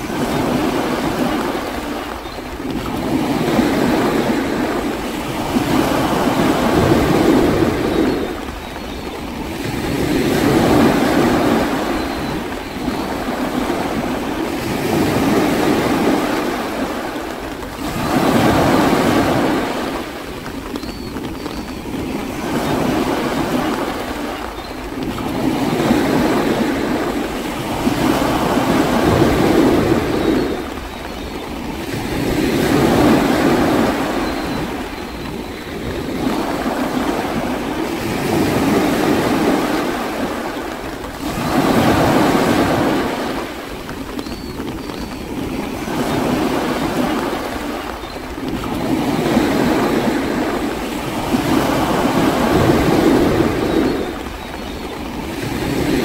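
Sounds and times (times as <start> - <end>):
sea waves surging onto shore: 0.0 - 56.0.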